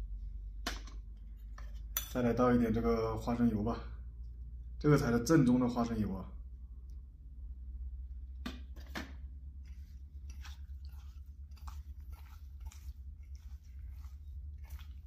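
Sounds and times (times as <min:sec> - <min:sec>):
wet squishing of meat: 0:09.4 - 0:15.0.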